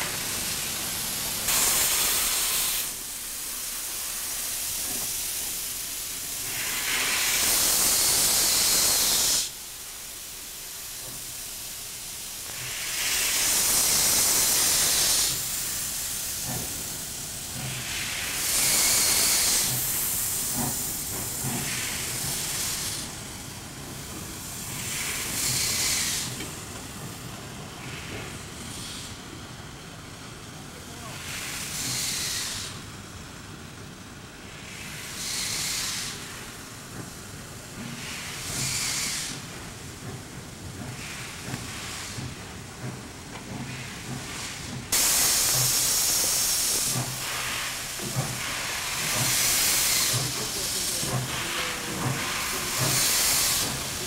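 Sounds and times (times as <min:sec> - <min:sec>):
soft steam hiss: 0:00.0 - 0:54.0
steam locomotive hissing blasts: 0:00.0 - 0:54.0.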